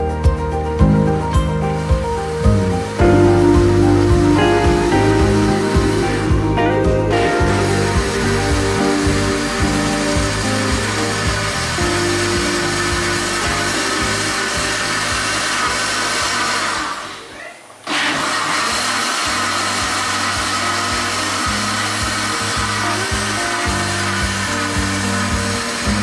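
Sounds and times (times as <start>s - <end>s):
electric blender motor whirring: 7.4s - 26.0s.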